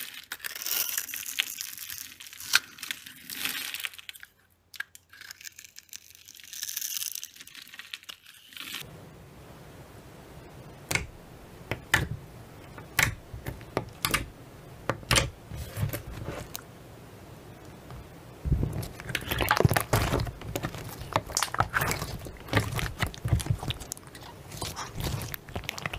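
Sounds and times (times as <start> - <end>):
blade crumbling dry soap: 0.0 - 8.8, 18.7 - 25.9
sticky slime pops and clicks: 10.9 - 11.1, 12.9 - 13.2, 14.0 - 14.3.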